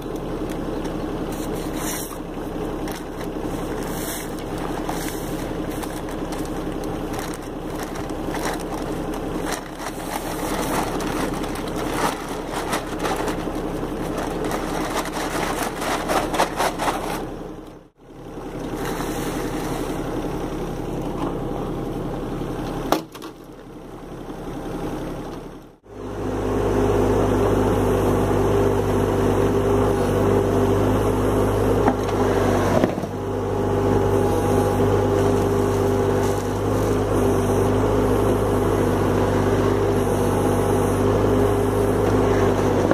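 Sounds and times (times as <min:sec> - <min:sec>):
excavator bucket stirring concrete: 0:00.0 - 0:17.6
diesel engine running: 0:00.0 - 0:42.9
paper bag crackling and scraping: 0:02.8 - 0:17.4, 0:34.4 - 0:37.0.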